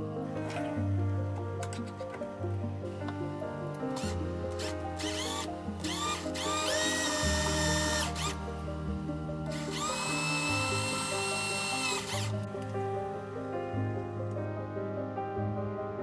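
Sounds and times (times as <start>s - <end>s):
electric drill motor whining: 3.8s - 12.5s.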